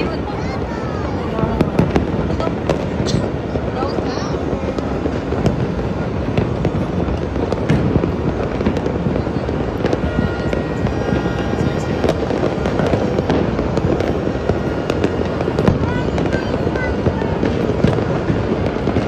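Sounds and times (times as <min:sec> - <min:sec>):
firework bangs: 0:00.0 - 0:19.0
fireworks crackling: 0:00.0 - 0:19.0.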